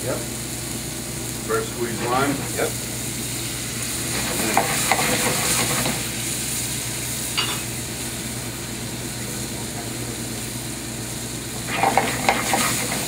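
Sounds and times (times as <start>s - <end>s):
juice sizzling in a hot skillet: 0.0s - 13.0s.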